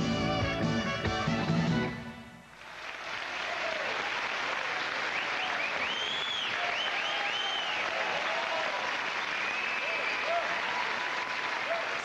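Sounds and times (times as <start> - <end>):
theme music: 0.0 - 2.4
audience applauding: 2.5 - 12.0
crowd whistling: 5.0 - 12.0.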